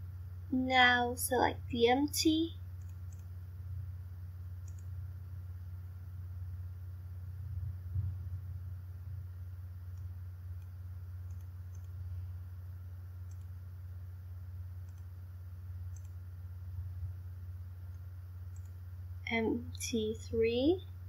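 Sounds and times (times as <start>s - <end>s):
steady low hum: 0.0s - 21.0s
computer mouse clicks: 2.8s - 3.3s, 4.6s - 4.9s, 9.9s - 12.0s, 13.2s - 13.6s, 14.8s - 15.1s, 15.9s - 16.2s, 17.9s - 18.8s.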